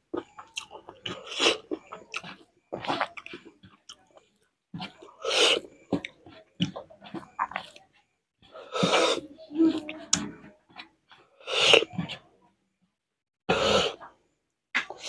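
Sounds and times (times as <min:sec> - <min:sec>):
person chewing food: 0:00.0 - 0:12.3.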